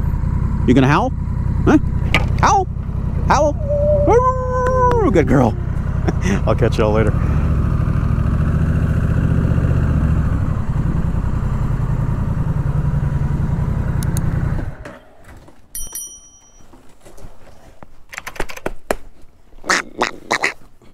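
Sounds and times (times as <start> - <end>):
motorcycle engine running: 0.0 - 14.8.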